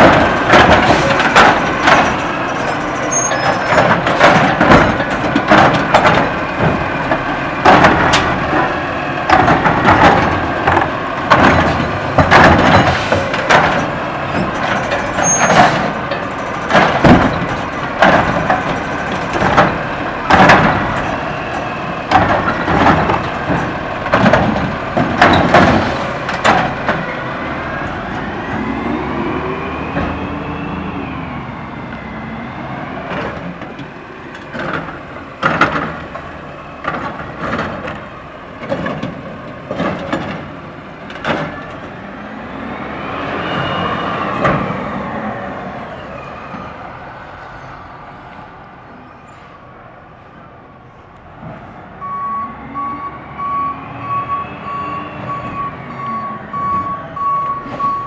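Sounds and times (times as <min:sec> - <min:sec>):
loud bangs and clatter of carts: 0:00.0 - 0:27.2, 0:33.0 - 0:42.0.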